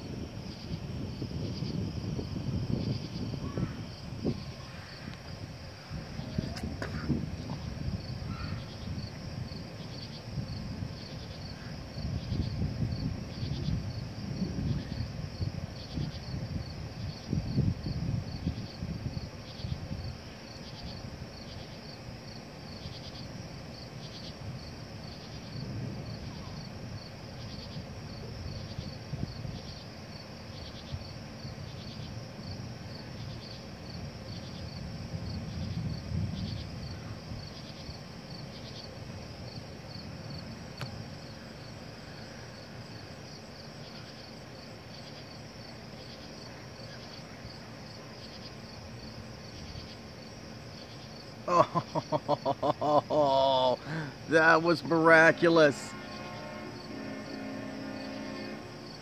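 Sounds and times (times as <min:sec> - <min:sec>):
night insects chirping: 0:00.0 - 0:59.0.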